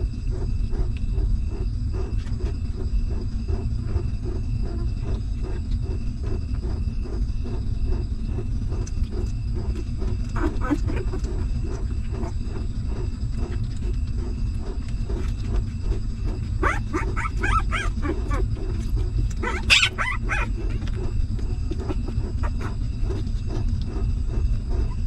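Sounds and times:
constant low rumble: 0.0 - 25.0
puppies squeaking and whimpering: 10.3 - 11.5, 16.6 - 23.3.

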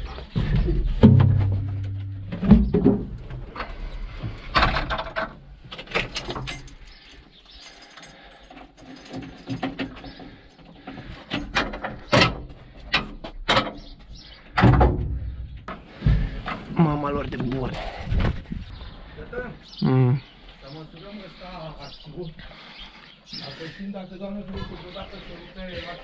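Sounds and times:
knocks and rattles of metal fittings: 0.4 - 16.8.

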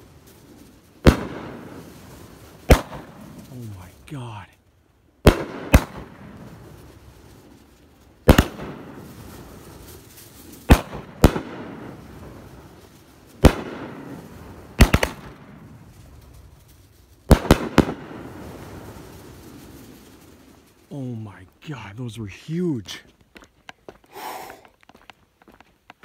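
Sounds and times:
fireworks shells banging overhead: 8.2 - 15.8, 17.2 - 19.0.

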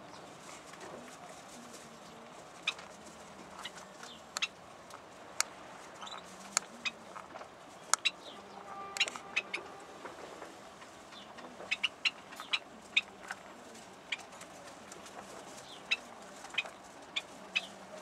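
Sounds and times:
bird clicks: 9.0 - 9.2.

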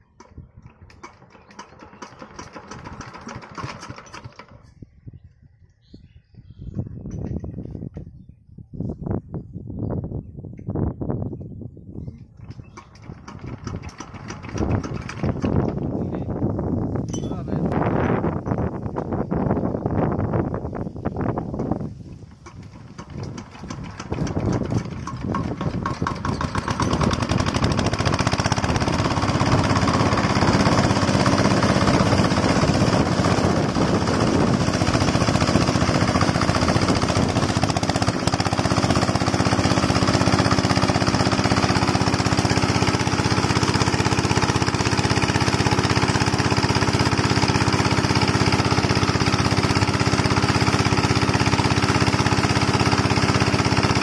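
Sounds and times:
diesel engine running: 22.3 - 54.0.

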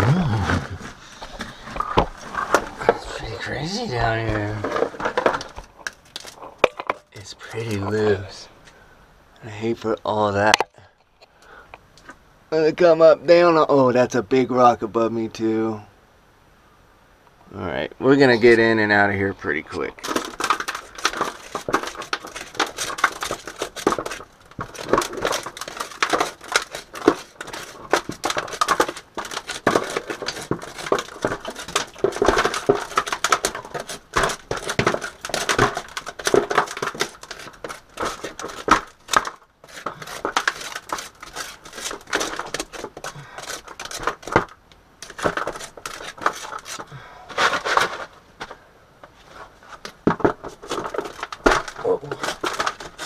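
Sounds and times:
metal tool scraping gravel: 19.4 - 48.1, 50.5 - 53.0.

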